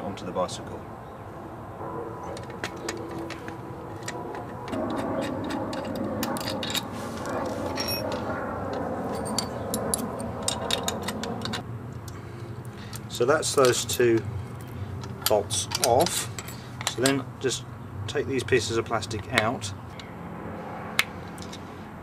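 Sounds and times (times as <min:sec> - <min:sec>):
steady rushing noise: 0:00.6 - 0:11.8
tools clicking on a bolt: 0:15.0 - 0:17.2.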